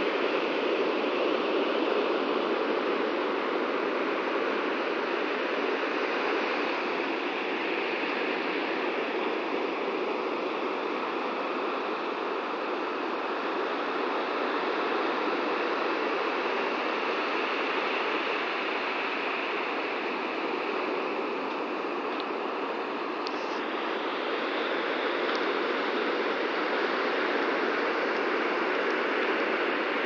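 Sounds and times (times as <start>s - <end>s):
ocean surf breaking: 0.0s - 30.0s.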